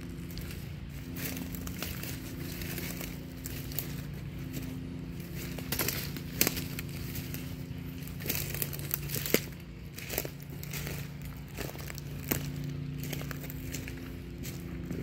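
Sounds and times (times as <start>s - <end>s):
footsteps crunching through dry leaves: 0.0s - 15.0s
steady low hum: 0.0s - 15.0s
twigs snapping: 5.2s - 14.7s.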